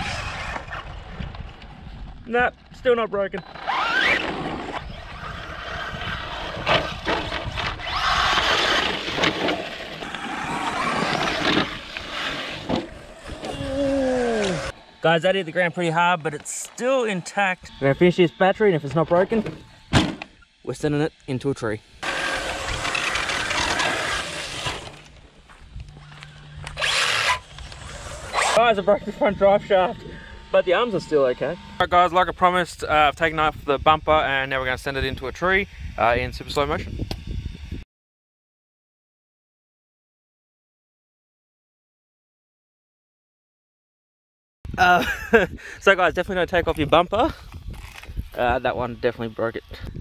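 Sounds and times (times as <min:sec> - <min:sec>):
toy truck driving over dirt: 0:00.0 - 0:02.2, 0:03.4 - 0:14.8, 0:22.0 - 0:25.2, 0:26.6 - 0:29.9.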